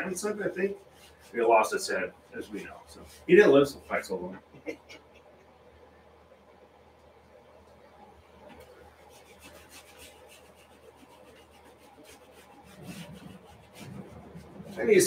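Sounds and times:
brush scrubbing on canvas: 0.0 - 4.2, 8.5 - 15.0.

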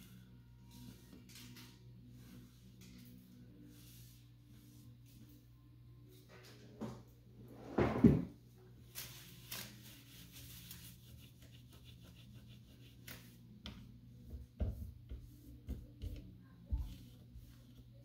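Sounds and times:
cloth rubbing on cooktop: 8.9 - 13.4.

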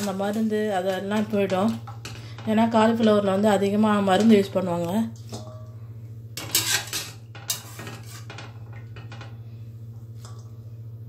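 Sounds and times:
steady low hum: 0.0 - 11.0
metal strainer clattering on metal pan: 6.4 - 9.4.

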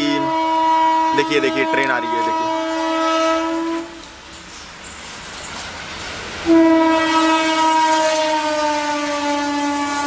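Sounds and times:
locomotive horn blasts: 0.0 - 4.1, 6.4 - 10.0
train rumble: 0.0 - 10.0.

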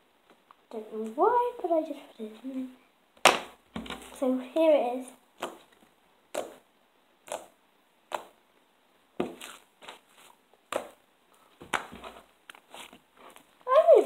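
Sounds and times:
slime squishing: 5.4 - 8.4, 9.2 - 11.0.

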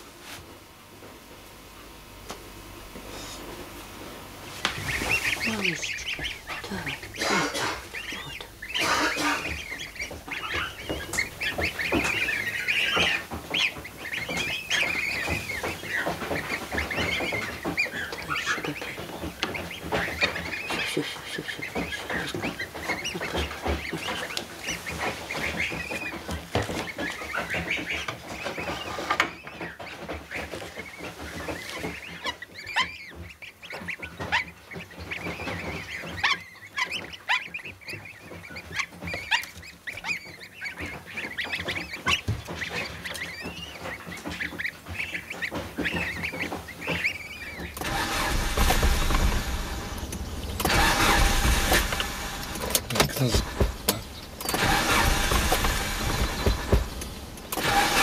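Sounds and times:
goslings peeping: 2.1 - 58.0
car engine rumble from inside: 47.8 - 58.0.

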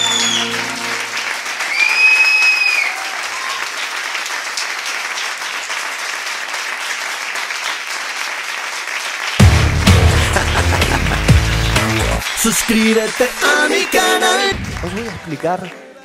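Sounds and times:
high whistle: 0.0 - 0.9, 1.6 - 3.6
audience applauding: 0.0 - 16.0
loud electronic music: 9.4 - 15.6.

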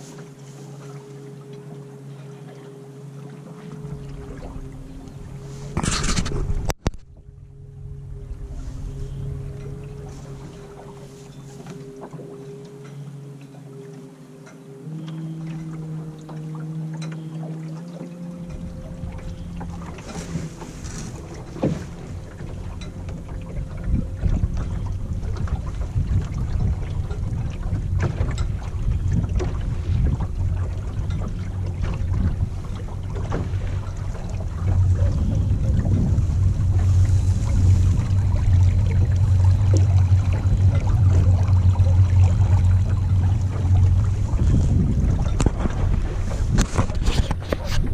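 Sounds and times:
water splashing along a boat hull: 0.0 - 47.9
wind on the microphone: 4.1 - 7.3, 18.5 - 47.9.

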